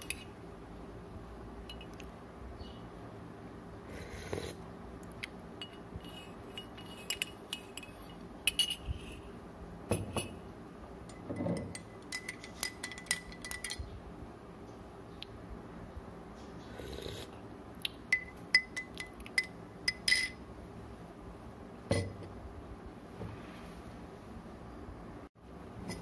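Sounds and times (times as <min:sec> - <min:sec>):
teaspoons clinking against mugs: 0:05.6 - 0:09.2, 0:11.1 - 0:13.8, 0:18.1 - 0:20.4.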